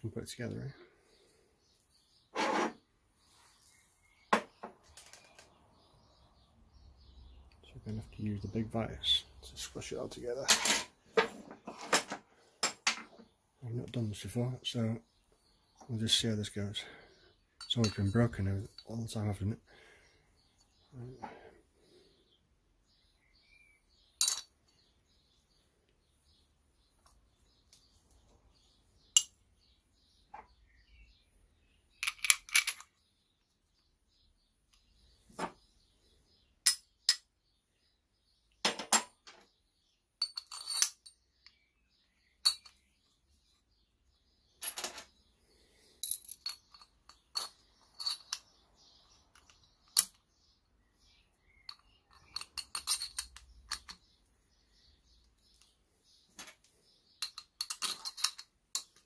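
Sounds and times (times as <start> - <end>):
metal parts clinking: 24.2 - 24.5, 32.0 - 33.0, 40.2 - 41.2, 42.4 - 42.8, 46.0 - 48.5, 49.3 - 50.2, 51.7 - 54.0, 56.3 - 59.0.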